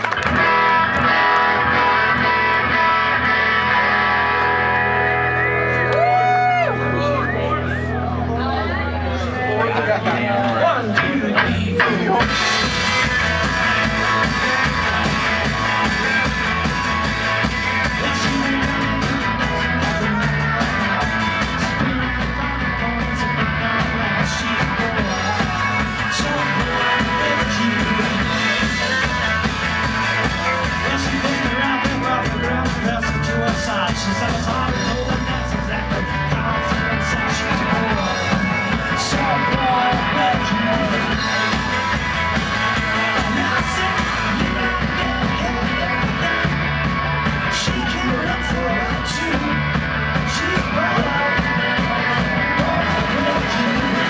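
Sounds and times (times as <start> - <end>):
electric guitars: 0.0 - 54.0
drum kit steady beat: 11.0 - 54.0.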